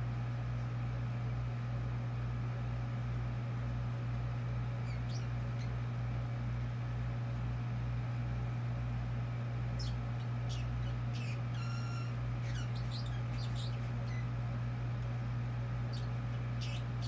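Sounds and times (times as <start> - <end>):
steady low hum: 0.0 - 17.0
bird chirping: 4.8 - 5.8, 9.8 - 14.3, 15.8 - 17.0.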